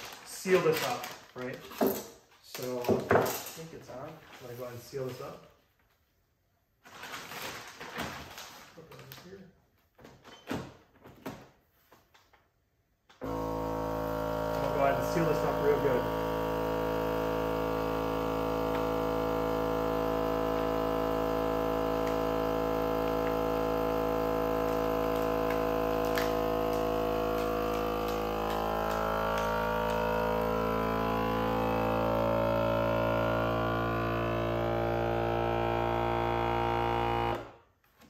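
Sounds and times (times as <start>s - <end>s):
vacuum sealer pump humming: 13.2s - 37.6s.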